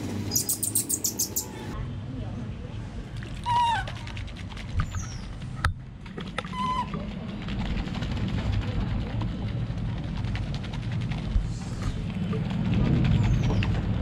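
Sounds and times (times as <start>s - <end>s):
baby monkey squeaky calls: 0.3s - 1.6s, 3.4s - 3.9s, 6.5s - 6.9s.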